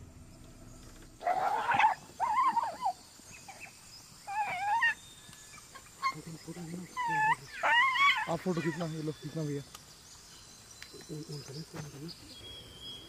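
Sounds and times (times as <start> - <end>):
dog yelping: 1.2 - 5.0, 6.9 - 8.9.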